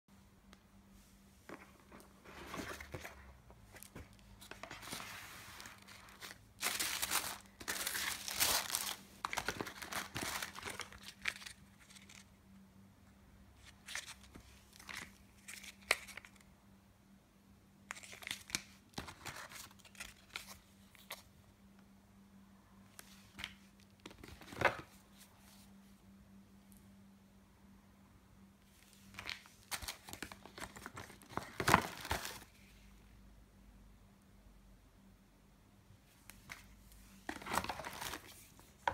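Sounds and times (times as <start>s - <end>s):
paper and plastic crinkling: 1.5s - 12.3s, 28.9s - 32.5s, 36.3s - 38.9s.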